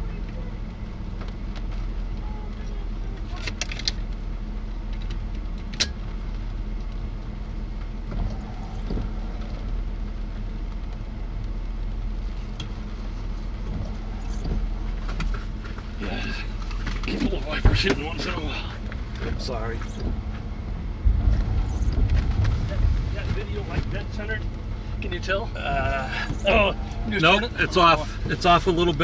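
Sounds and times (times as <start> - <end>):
vehicle engine idling: 0.0 - 29.0.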